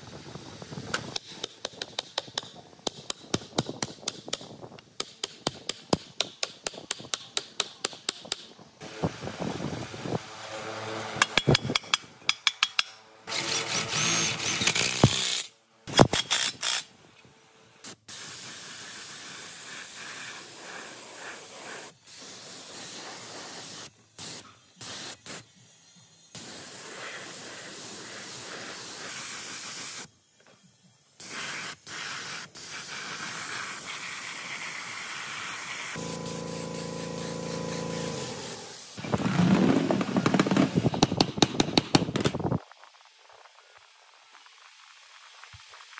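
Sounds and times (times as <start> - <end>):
spray paint hissing: 17.8 - 39.1
steady hum: 36.0 - 39.0.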